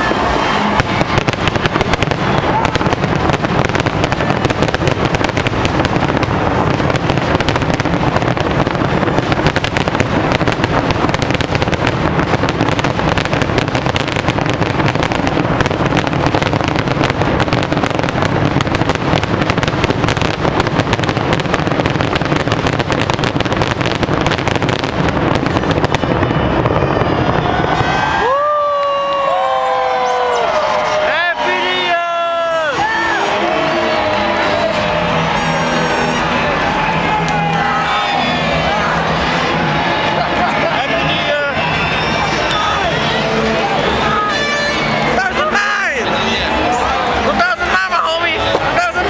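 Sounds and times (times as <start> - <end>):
fireworks crackling and bangs: 0.0 - 49.0.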